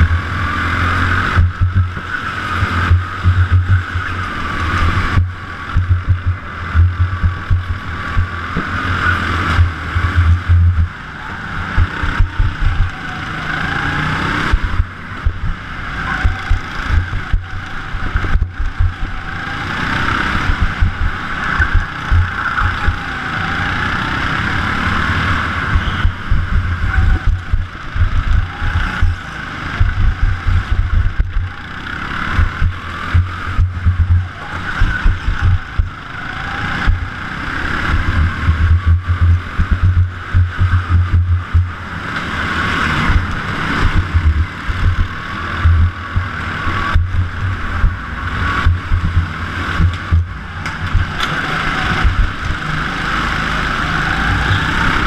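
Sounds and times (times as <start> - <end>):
go-kart motor at race pace: 0.0 - 55.0
wind buffeting on microphone: 1.4 - 11.0, 14.5 - 19.4, 25.7 - 31.7.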